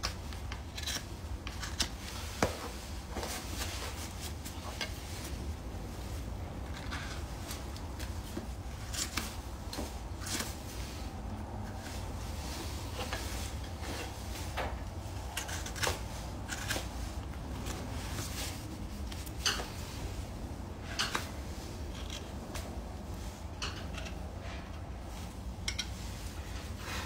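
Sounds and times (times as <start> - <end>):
hoof knife scraping hoof: 0.3 - 2.2, 15.3 - 19.2.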